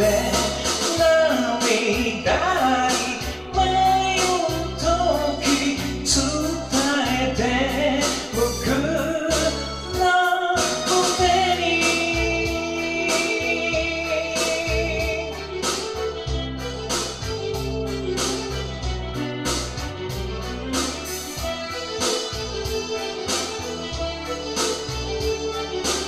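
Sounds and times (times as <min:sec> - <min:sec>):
man singing pop ballad: 0:00.0 - 0:15.8
karaoke backing track with drums: 0:00.0 - 0:26.0.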